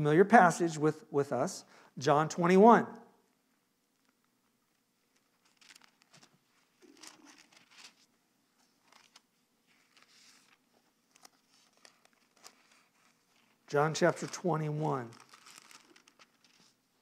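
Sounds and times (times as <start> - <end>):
thin pages rustling: 5.1 - 16.9.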